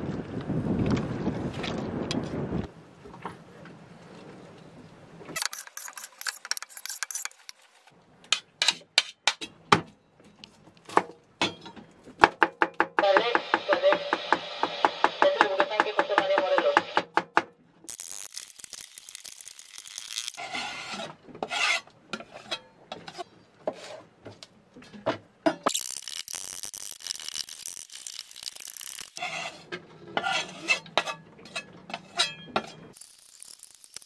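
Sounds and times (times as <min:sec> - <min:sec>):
blade scraping across board: 0:05.4 - 0:07.9, 0:19.0 - 0:24.0, 0:28.8 - 0:34.0.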